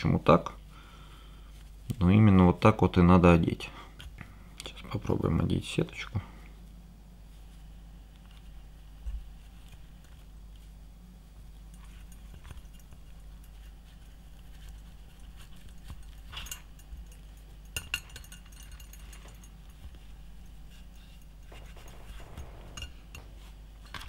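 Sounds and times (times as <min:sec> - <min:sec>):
lantern metal parts clicking: 0:15.2 - 0:19.9.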